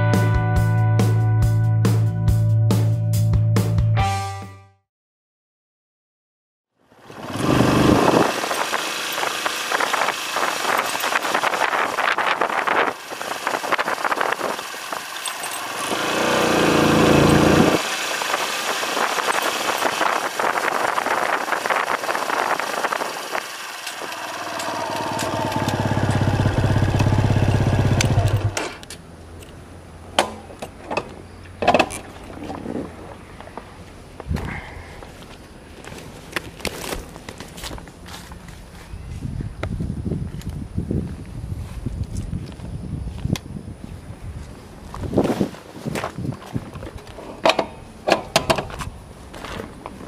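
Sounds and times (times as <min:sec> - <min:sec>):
dirt bike engine: 0:06.9 - 0:29.0.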